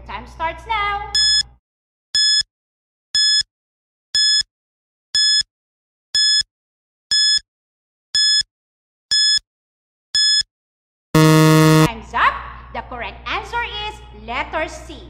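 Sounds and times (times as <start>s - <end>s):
countdown timer beeping: 1.2s - 1.4s, 11.2s - 11.9s.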